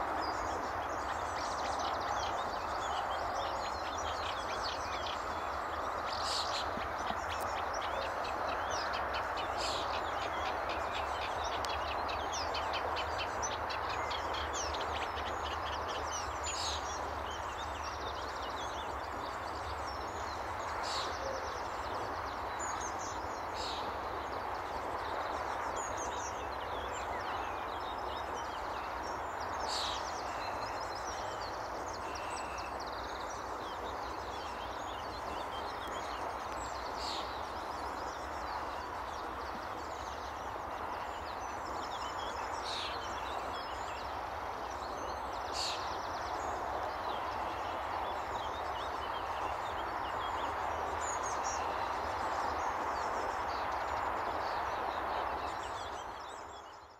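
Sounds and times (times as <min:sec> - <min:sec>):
reed warbler chattering song: 0:00.0 - 0:56.9.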